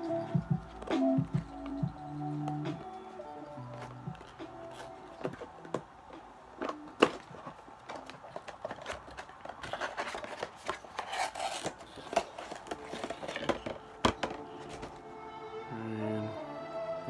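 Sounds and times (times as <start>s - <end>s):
packaging rubbing and rustling: 3.6s - 6.0s, 6.6s - 15.1s.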